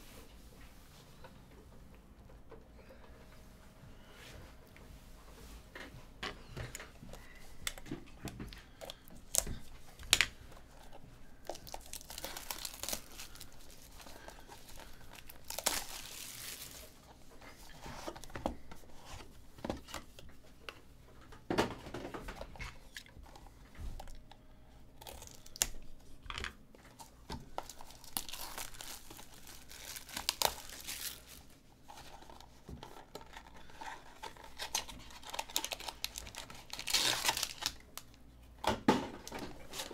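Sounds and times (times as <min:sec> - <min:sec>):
cardboard tearing and crinkling: 0:11.4 - 0:17.1, 0:27.4 - 0:38.1, 0:39.5 - 0:39.9.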